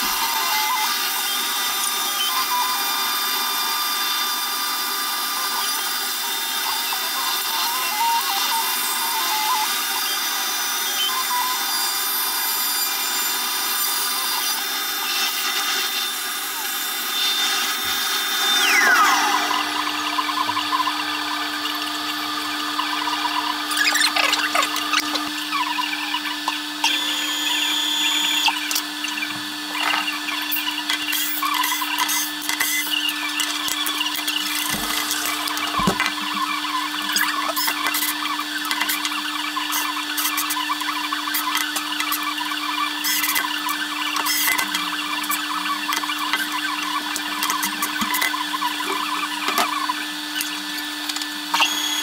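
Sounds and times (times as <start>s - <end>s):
router spindle cutting with whine: 0.0s - 52.0s
steady machine hum: 17.6s - 30.9s
vacuum nozzle sucking: 34.2s - 36.3s.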